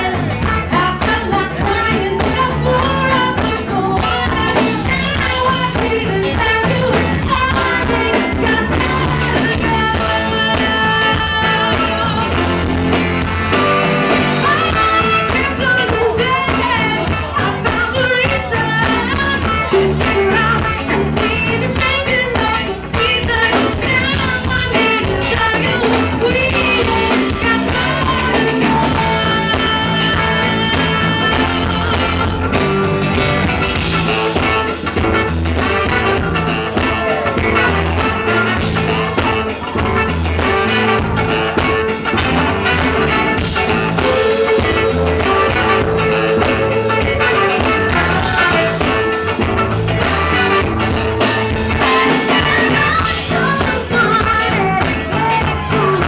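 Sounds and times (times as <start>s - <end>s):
women singing: 0.0s - 12.6s, 14.4s - 32.5s, 43.9s - 49.0s, 51.7s - 56.0s
funk band playing: 0.0s - 56.0s.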